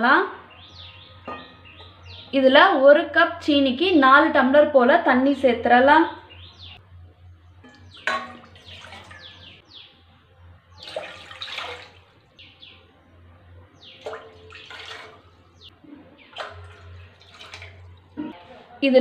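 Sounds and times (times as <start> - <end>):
birds chirping: 0.4 - 2.4, 6.2 - 18.6
water splashing into metal pot: 7.7 - 9.5, 10.8 - 12.2, 14.0 - 15.3, 16.3 - 18.2.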